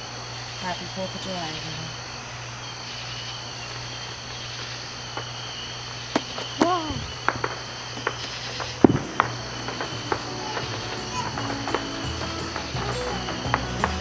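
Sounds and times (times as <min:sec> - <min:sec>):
crickets chirping: 0:00.0 - 0:14.0
fireworks pops: 0:03.7 - 0:14.0.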